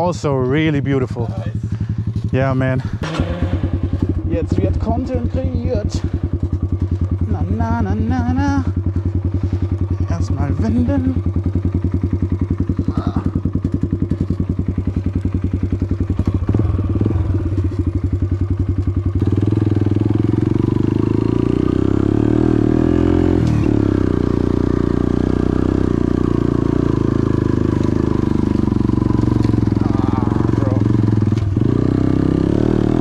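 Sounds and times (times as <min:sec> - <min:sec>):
motorcycle engine chugging: 0:00.0 - 0:33.0.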